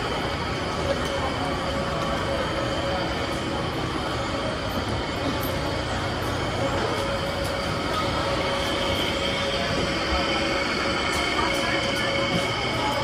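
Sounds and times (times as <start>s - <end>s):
murmur of many voices: 0.0s - 13.0s
steady mechanical hum: 0.0s - 13.0s.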